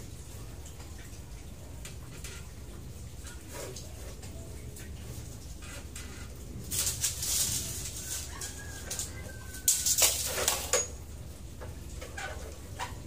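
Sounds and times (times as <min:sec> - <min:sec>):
handling noises: 0:05.2 - 0:11.0.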